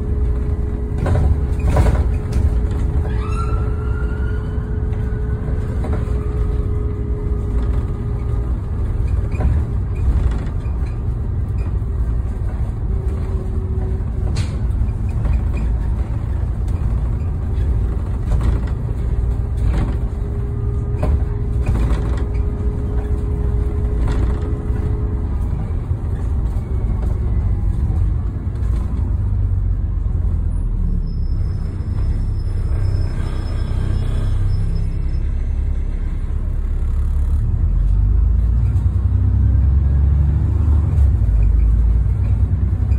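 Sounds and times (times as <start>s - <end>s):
bus engine and road rumble: 0.0s - 42.9s
knocks and rattles: 0.2s - 3.1s, 4.9s - 27.4s.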